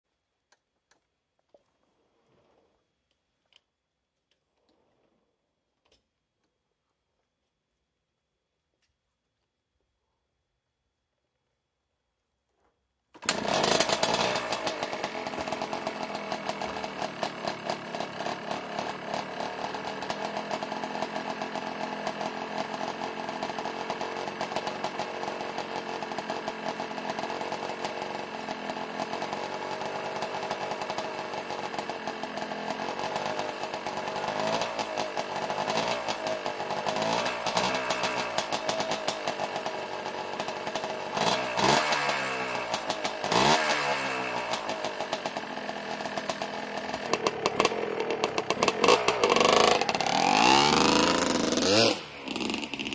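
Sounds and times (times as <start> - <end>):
two-stroke engine idling: 13.2 - 52.9.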